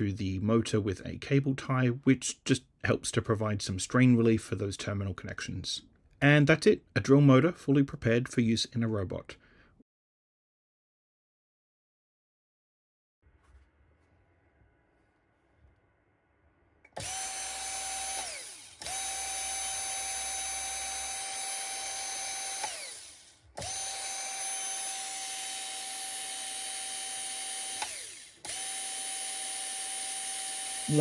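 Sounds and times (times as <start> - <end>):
drill motor whining: 16.9 - 31.0.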